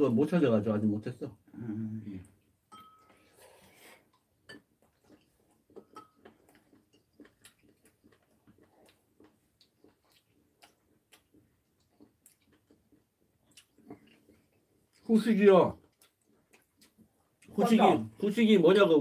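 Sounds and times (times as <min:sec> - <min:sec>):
chewing clicks: 0:04.8 - 0:15.1, 0:15.8 - 0:17.5.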